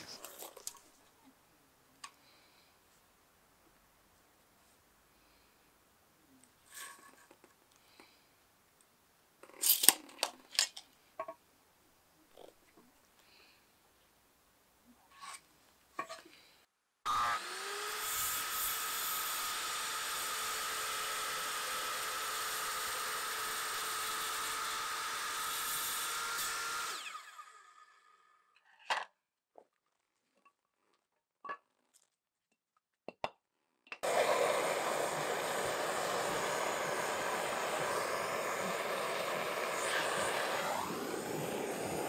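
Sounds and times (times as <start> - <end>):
circular saw cutting wood: 17.1 - 28.3, 34.0 - 42.0
gas torch flame rushing: 34.0 - 42.0.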